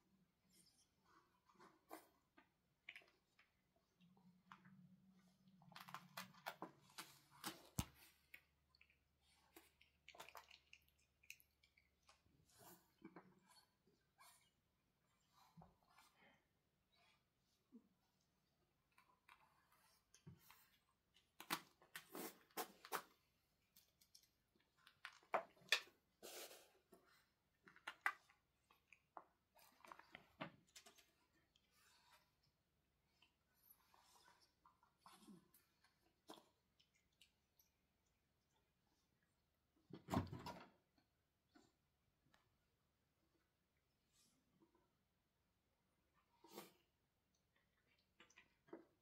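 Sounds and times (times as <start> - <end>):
cat chewing with wet clicks: 8.4 - 12.3.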